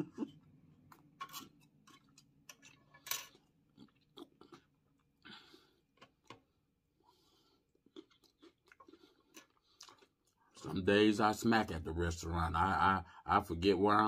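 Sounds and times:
person chewing with lip smacking: 3.4s - 5.2s, 7.6s - 10.8s.

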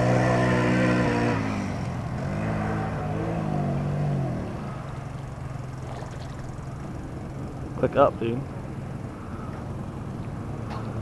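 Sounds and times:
atv engine revving: 0.0s - 7.6s.

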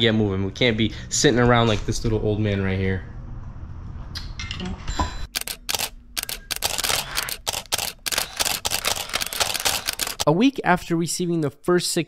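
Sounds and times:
camera shutter clicking: 5.4s - 10.2s.

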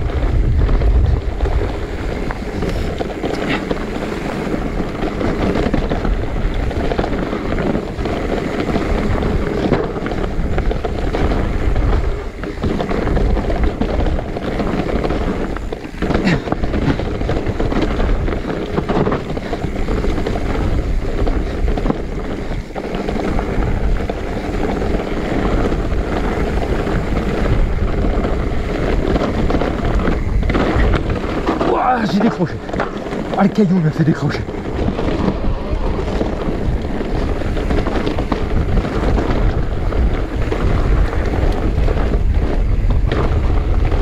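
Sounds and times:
bike rattling over rocky trail: 0.0s - 44.0s
wind buffeting microphone: 0.0s - 44.0s.

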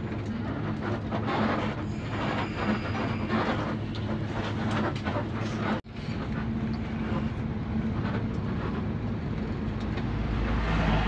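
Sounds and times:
bus engine hum: 0.0s - 11.0s
road noise: 0.0s - 11.0s.

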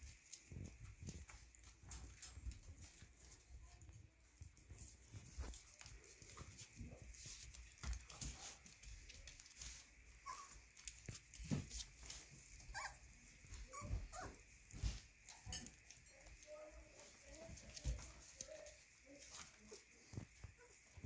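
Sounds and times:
puppies scuffling on a blanket: 0.0s - 21.0s
puppies squeaking and whimpering: 10.2s - 10.7s, 12.6s - 14.4s.

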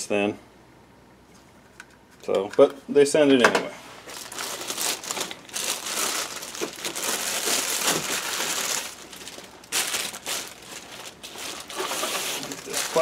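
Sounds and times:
plastic wrapping crinkling: 4.0s - 13.0s.

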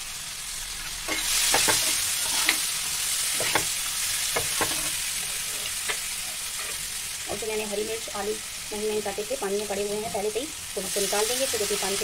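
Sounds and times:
tomatoes sizzling in frying pan: 0.0s - 12.0s
spatula scraping and tapping pan: 0.8s - 2.7s, 3.3s - 6.8s.

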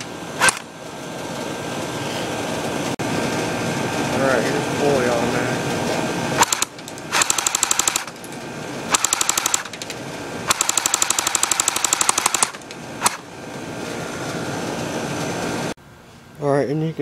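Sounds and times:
airsoft gun firing bursts: 6.4s - 8.1s, 8.9s - 9.8s, 10.5s - 13.2s.

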